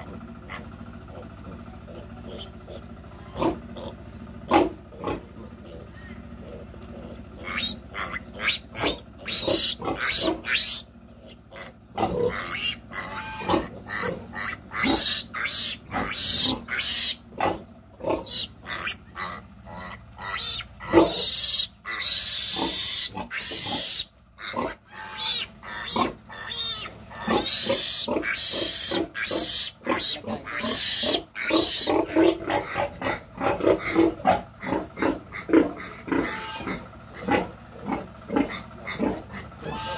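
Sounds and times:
piglet squealing: 0.5 - 4.0, 4.6 - 37.5, 38.4 - 39.9.

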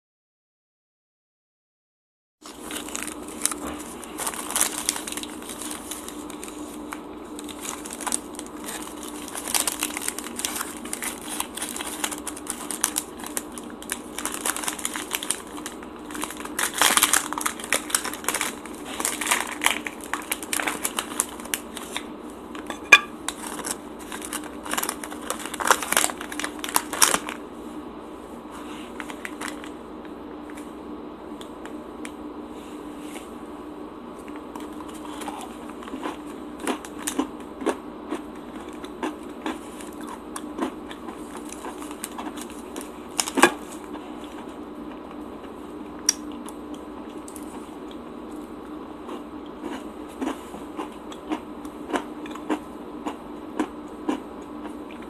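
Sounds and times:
wrapper crinkling and rustling: 2.5 - 22.0, 23.3 - 27.4, 29.0 - 29.7.

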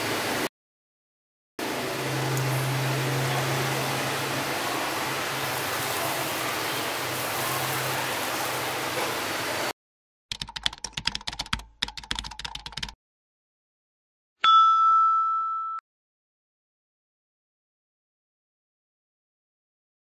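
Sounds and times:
rapid keyboard typing clicks: 10.3 - 13.0
bell ding: 14.4 - 15.8.

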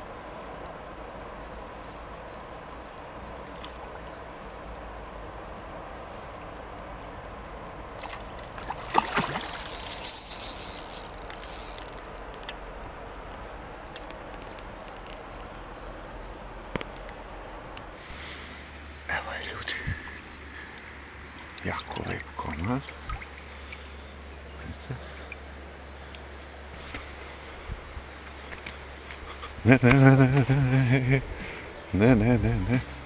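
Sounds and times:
river noise: 0.0 - 33.0
small clicks: 0.4 - 17.9
fish splashing in water: 8.0 - 10.3.

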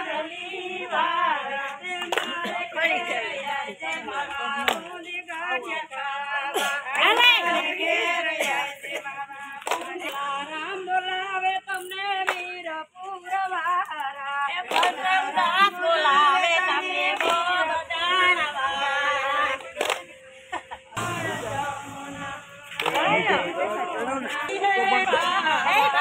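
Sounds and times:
women singing unaccompanied: 0.0 - 26.0
hand clap: 2.0 - 2.5, 4.6 - 4.9, 9.6 - 10.3, 11.8 - 12.6, 14.7 - 15.2, 17.1 - 17.5, 19.6 - 20.1, 22.6 - 23.2.

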